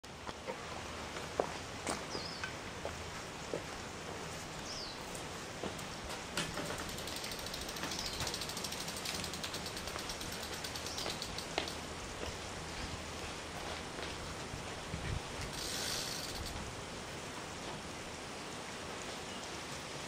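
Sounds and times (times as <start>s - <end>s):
bicycle freewheel ticking: 6.4s - 12.2s, 15.4s - 16.7s.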